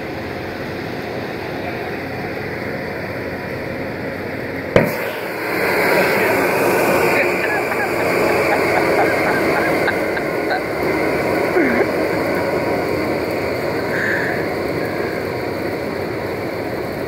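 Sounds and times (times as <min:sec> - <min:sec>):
gas venting rushing hiss: 0:00.0 - 0:17.0.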